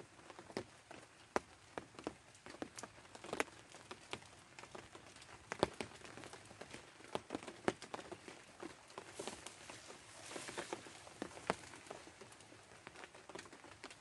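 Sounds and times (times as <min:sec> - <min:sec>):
faint steady hiss: 0:00.0 - 0:14.0
plastic raincoat crinkling: 0:01.8 - 0:14.0.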